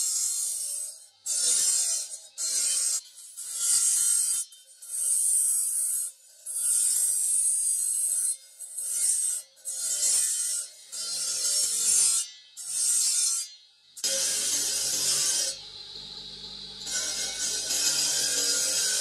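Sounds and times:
stone grinding on abrasive disc: 14.0 - 19.0.

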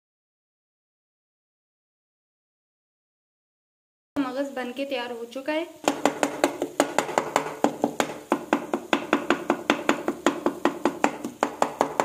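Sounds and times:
wooden spatula knocking on pan: 5.8 - 12.0.

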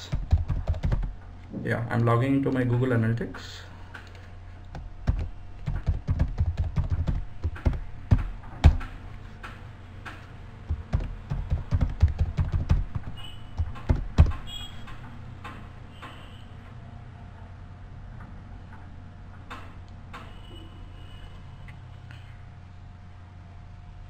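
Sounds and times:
keyboard typing: 0.0 - 1.2, 3.9 - 15.6
low steady hum: 0.0 - 24.0.

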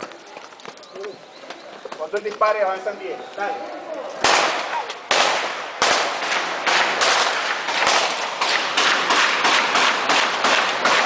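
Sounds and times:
rapid gunshots: 4.2 - 11.0.

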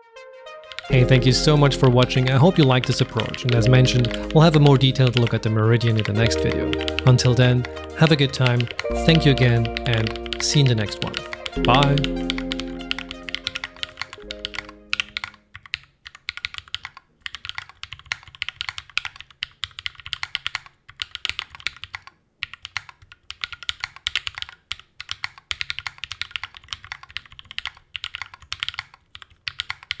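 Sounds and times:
outro music: 0.0 - 15.3
mechanical keyboard typing: 0.6 - 30.0.

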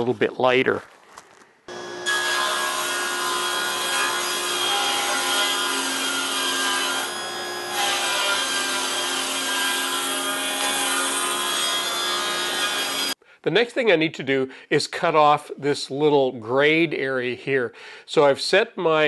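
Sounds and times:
table saw cutting wood: 1.7 - 13.2.

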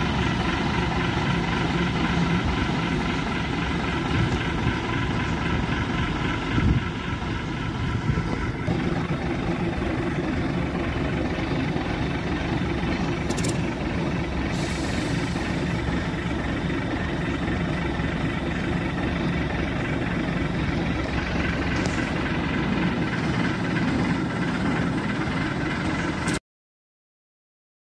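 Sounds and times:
diesel locomotive engine running: 0.0 - 26.4
brief hisses: 14.5 - 15.6.

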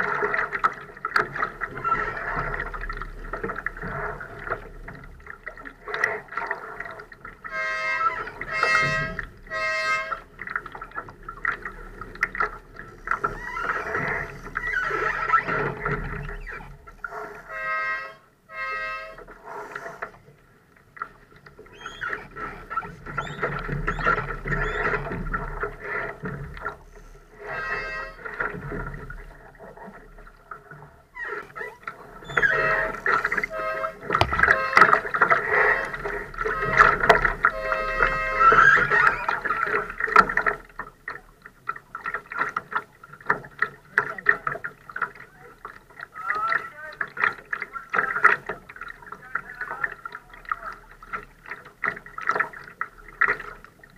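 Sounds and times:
water: 0.0 - 53.9
wind: 0.0 - 53.9
short high squeaks: 7.6 - 10.2, 21.7 - 25.0, 27.4 - 28.2, 31.2 - 39.4
small knocks on hull: 30.8 - 53.7.

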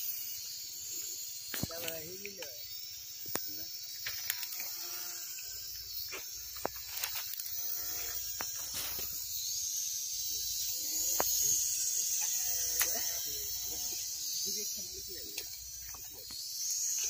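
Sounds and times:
drone propellers buzzing: 4.4 - 17.0.

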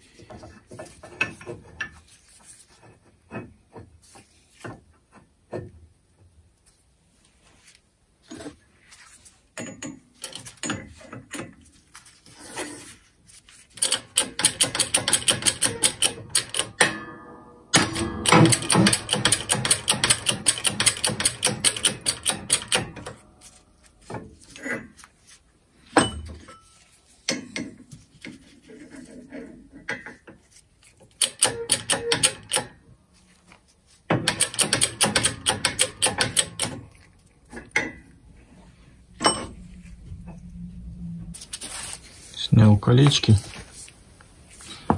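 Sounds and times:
rapid clicking of workshop press: 13.8 - 17.1, 17.7 - 23.2, 31.2 - 32.8, 34.1 - 36.9.

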